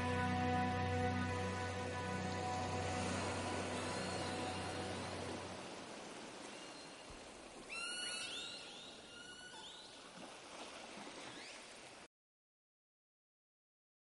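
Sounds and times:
background music: 0:00.0 - 0:06.0
forest stream hiss: 0:00.0 - 0:12.1
bird whistling rising notes: 0:02.1 - 0:05.5.

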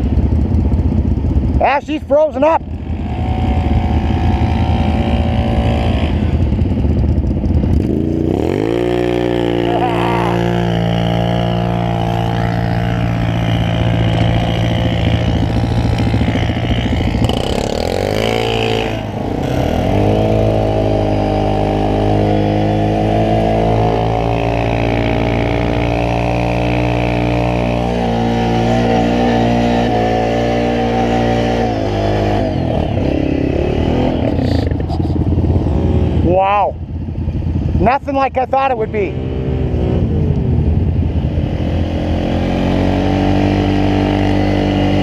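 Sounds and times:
atv engine running under load: 0:00.0 - 0:45.0.

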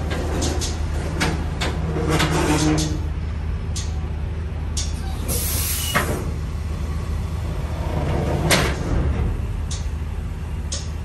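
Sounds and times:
sharp clicks and knocks: 0:00.1 - 0:03.0, 0:09.6 - 0:09.9, 0:10.7 - 0:11.0.

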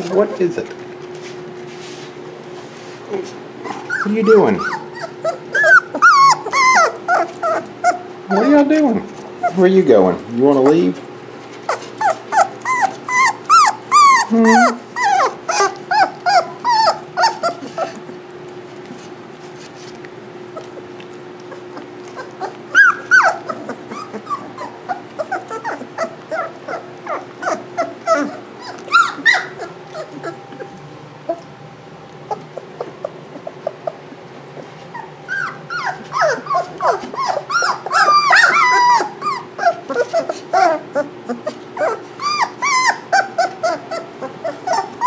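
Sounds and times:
puppies whining and yelping: 0:00.0 - 0:01.2, 0:03.6 - 0:45.0.

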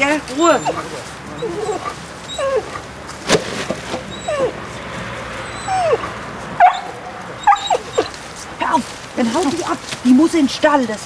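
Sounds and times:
dog whining: 0:00.0 - 0:03.0, 0:03.9 - 0:08.8.

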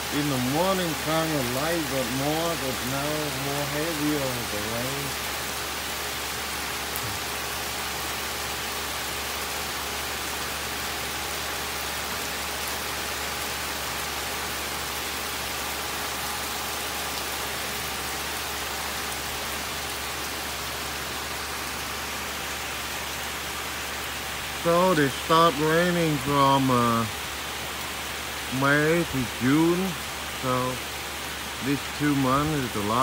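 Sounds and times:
heavy rain on garden and trees: 0:00.0 - 0:33.0.

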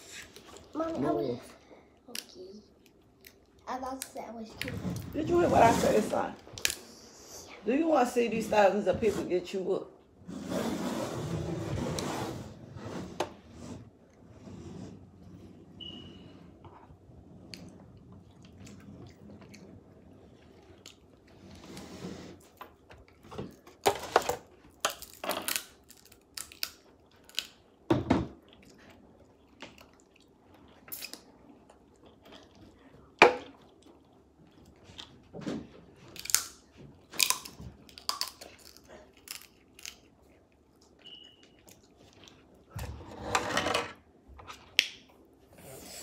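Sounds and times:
chewing: 0:28.4 - 0:35.3.

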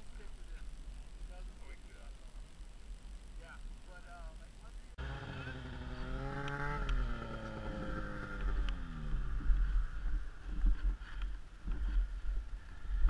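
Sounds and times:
snowmobile engine slowing: 0:05.0 - 0:13.0.

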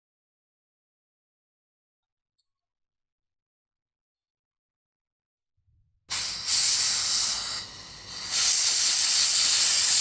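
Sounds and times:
compressed air spray hissing: 0:06.1 - 0:10.0.

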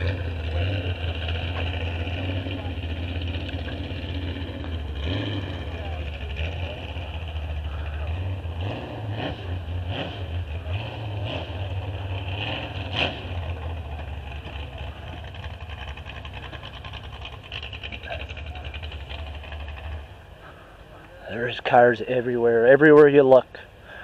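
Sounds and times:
vehicle engines rumbling: 0:00.0 - 0:24.0.

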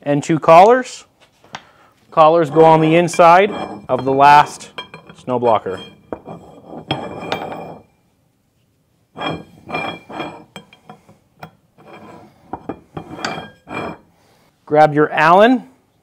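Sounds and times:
metal clinking and scraping: 0:02.3 - 0:07.9, 0:09.2 - 0:14.1.

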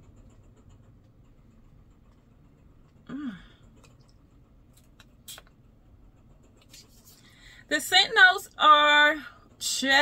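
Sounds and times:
woman humming hmm: 0:03.0 - 0:03.6.

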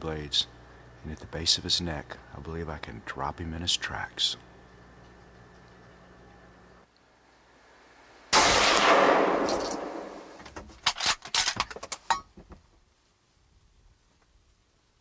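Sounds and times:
rifle shot: 0:08.3 - 0:11.2.

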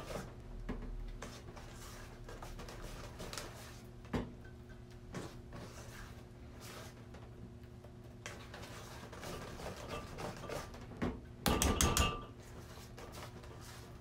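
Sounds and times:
spatula scraping mixing bowl: 0:08.3 - 0:10.9.

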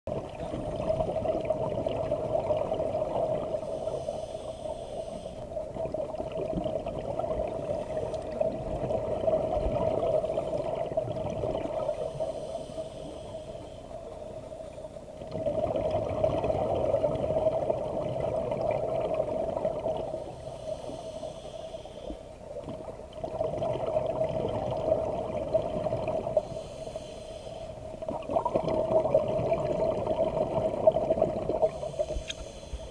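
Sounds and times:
exhaled bubbles burbling: 0:00.1 - 0:03.7, 0:05.6 - 0:12.1, 0:15.2 - 0:20.2, 0:22.6 - 0:26.4, 0:27.9 - 0:31.9
regulator inhale hiss: 0:03.5 - 0:05.6, 0:11.9 - 0:15.0, 0:20.1 - 0:22.3, 0:26.4 - 0:28.0, 0:31.6 - 0:32.9.

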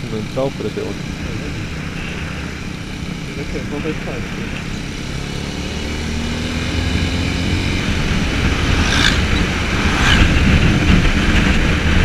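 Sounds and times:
motorcycle engine running: 0:00.0 - 0:12.0
wind on microphone: 0:06.8 - 0:12.0
hissing gusts: 0:07.0 - 0:11.5.

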